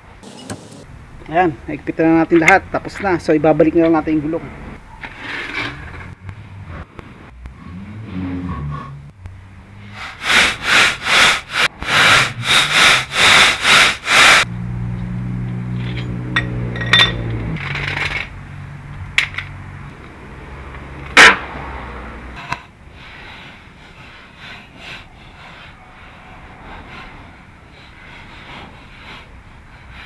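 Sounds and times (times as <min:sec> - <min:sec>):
impact wrench bursts: 0:10.3 - 0:14.5.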